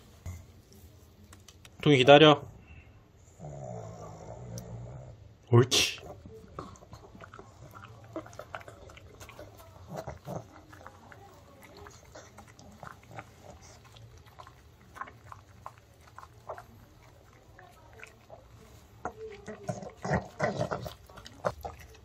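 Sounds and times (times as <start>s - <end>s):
dog chewing and licking: 6.0s - 22.0s
wet chewing smacks: 6.0s - 22.0s.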